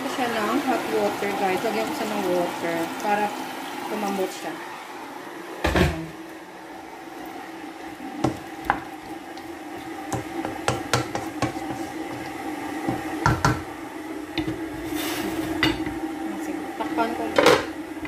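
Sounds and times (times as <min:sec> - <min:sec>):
wooden spatula scraping a pan: 0:10.1 - 0:13.6, 0:14.4 - 0:15.8.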